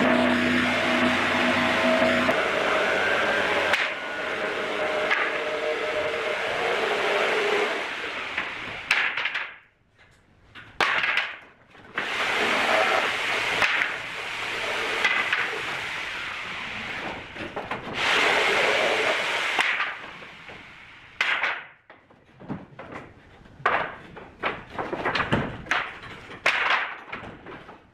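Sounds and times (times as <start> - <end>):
wooden boards sliding and scraping: 0.0 - 27.9
sharp wooden knocks: 4.9 - 6.1, 8.2 - 9.7, 10.6 - 16.0, 19.5 - 20.3, 21.2 - 27.9.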